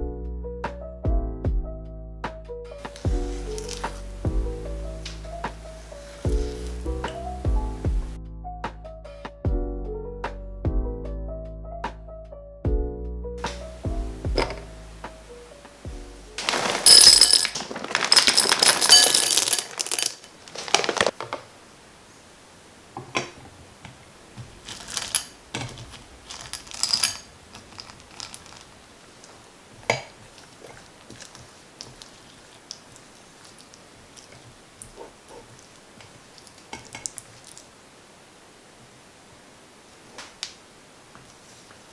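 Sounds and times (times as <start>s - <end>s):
chocolate chips rattling into glass bowl: 3.6s - 3.9s, 16.4s - 21.1s, 24.6s - 28.7s
glass bowl clinking against metal bowl: 16.5s - 20.1s, 26.3s - 28.6s
spatula stirring: 24.4s - 37.7s.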